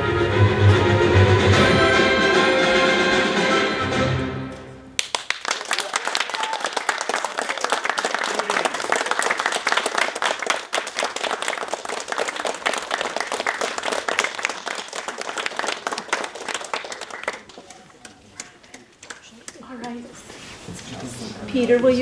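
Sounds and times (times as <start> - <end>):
audience applauding: 5.0 - 20.0.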